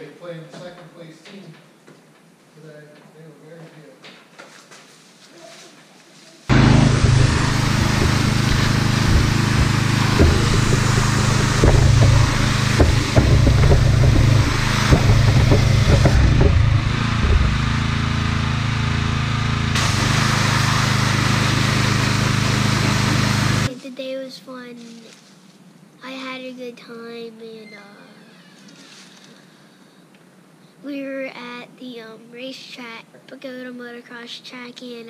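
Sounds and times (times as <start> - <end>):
light knocks from spray: 6.5 - 18.2
pressure washer engine drone: 6.5 - 23.7
water jet spraying: 6.5 - 23.7.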